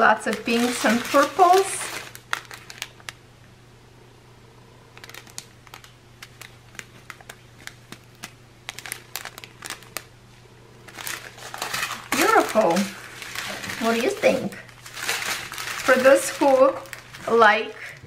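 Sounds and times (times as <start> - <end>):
plastic bags crinkling: 0.0 - 3.2, 4.9 - 10.2, 10.8 - 18.0.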